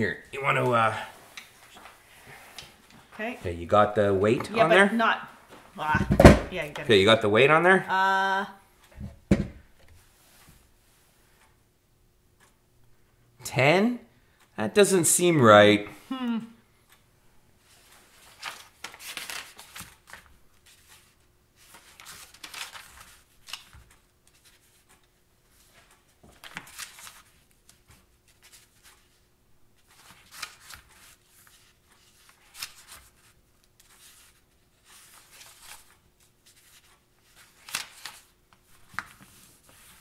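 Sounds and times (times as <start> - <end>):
paper pages rustling: 17.7 - 40.0.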